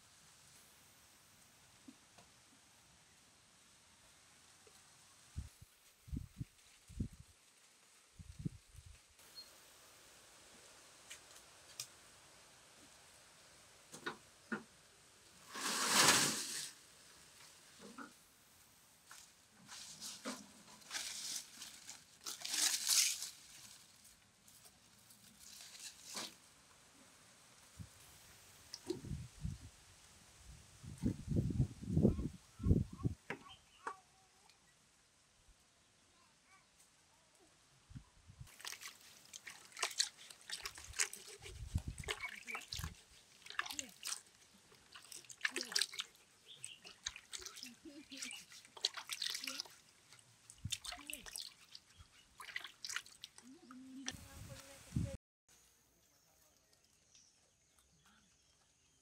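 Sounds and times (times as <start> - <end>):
dry leaves rustling: 15.4 - 16.8, 19.0 - 26.5, 38.5 - 53.4
hands scrubbing roots: 38.5 - 54.2
water splashing in a bucket: 38.5 - 54.2.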